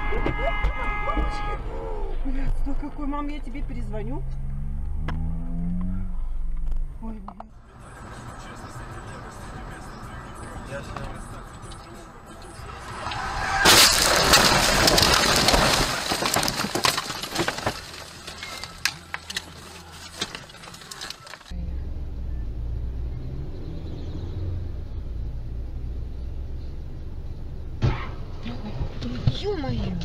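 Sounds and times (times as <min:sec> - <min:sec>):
car engine and tyres humming: 0:00.0 - 0:30.0
car scraping through bushes: 0:12.6 - 0:21.6
branches snapping and knocking: 0:13.0 - 0:21.5.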